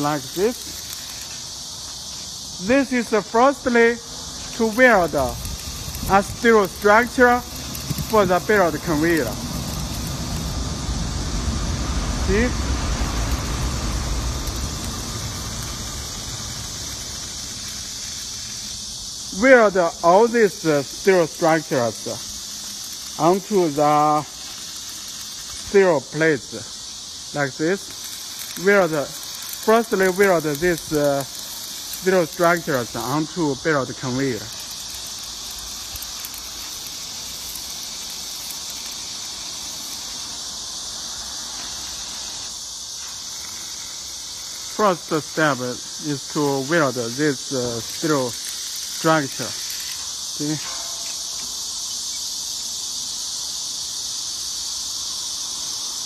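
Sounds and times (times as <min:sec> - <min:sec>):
arc welding hiss: 0:00.0 - 0:56.0.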